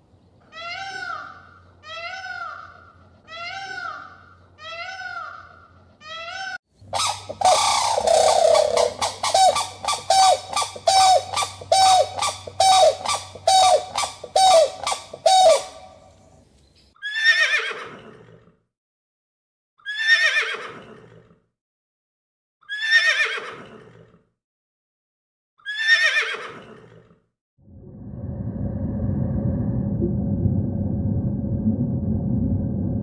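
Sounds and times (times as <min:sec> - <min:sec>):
long descending animal calls: 0:06.2 - 0:15.8.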